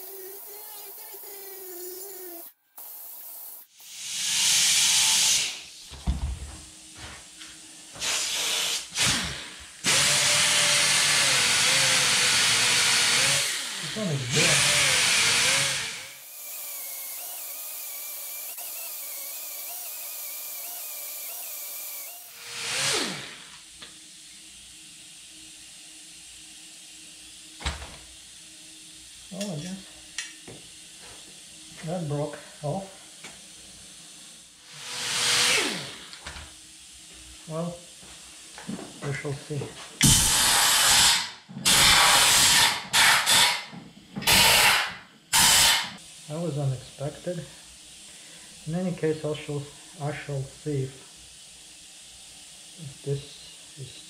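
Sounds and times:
air grinder grinding metal: 0.0s - 5.8s, 7.0s - 23.7s, 34.0s - 36.2s, 40.0s - 46.0s.

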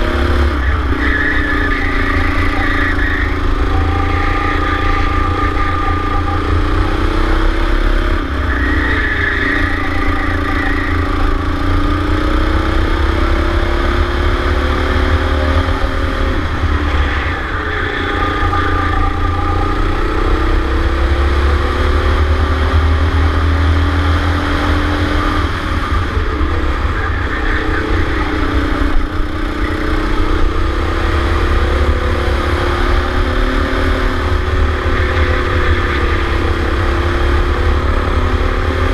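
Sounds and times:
go-kart engine revving: 0.0s - 38.9s.

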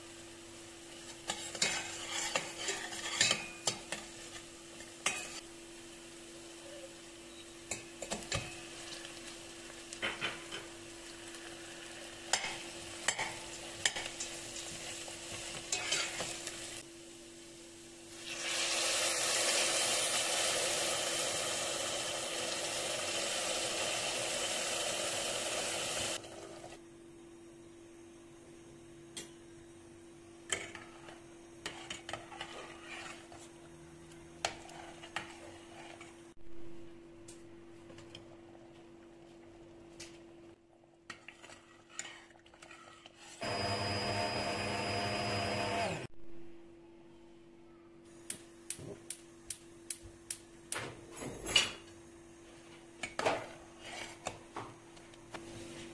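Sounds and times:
immersion blender motor whining: 43.4s - 46.1s.

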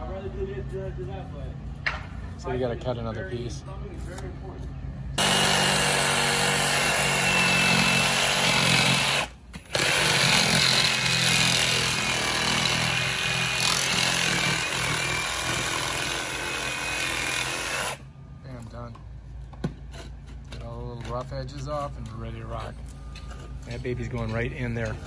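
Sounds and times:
power saw motor whine: 5.2s - 10.3s.

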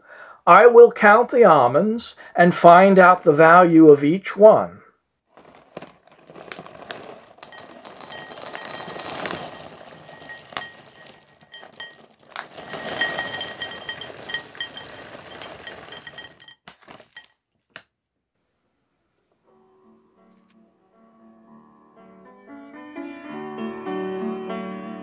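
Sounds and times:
almonds clattering into ceramic bowl: 5.4s - 17.4s.

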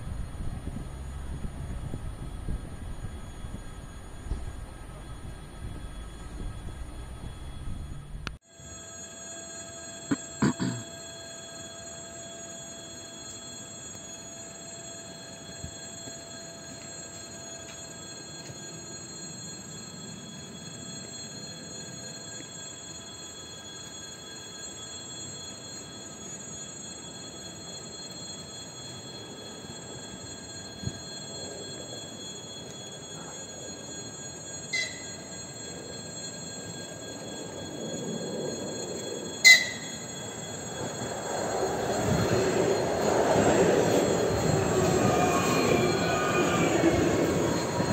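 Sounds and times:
faint high-pitched tones: 0.0s - 47.9s
train wheels rumbling on track: 28.4s - 47.9s.

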